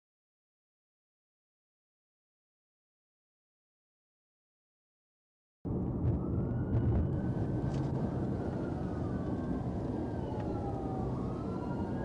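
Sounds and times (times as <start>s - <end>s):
car road and engine rumble: 5.7s - 12.0s
faint police siren wailing: 5.7s - 12.0s.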